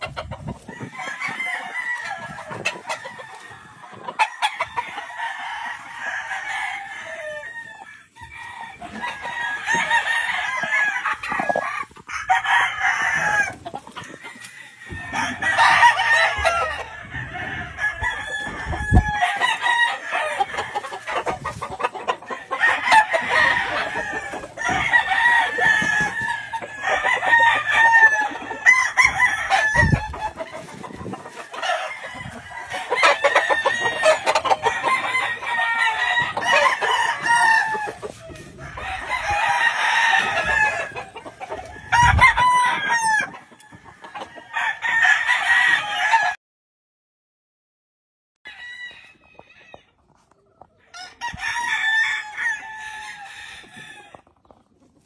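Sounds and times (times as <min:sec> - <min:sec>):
chickens clucking: 0:00.0 - 0:45.1, 0:49.1 - 0:55.0
roosters crowing: 0:00.0 - 0:46.4, 0:48.5 - 0:49.9, 0:50.8 - 0:54.6.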